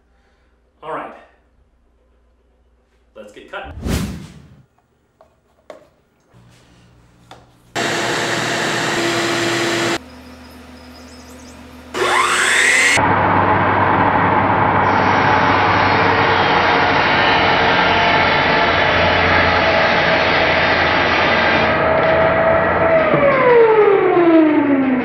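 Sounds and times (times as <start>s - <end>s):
loud rushing noise: 3.6s - 4.6s
miter saw cutting wood: 7.8s - 10.0s, 11.8s - 13.0s.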